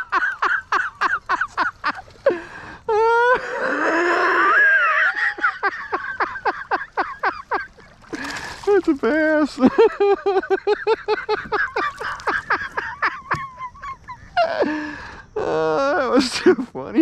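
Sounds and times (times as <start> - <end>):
man laughing excitedly: 0.0 - 2.0, 3.0 - 7.9, 8.6 - 14.8.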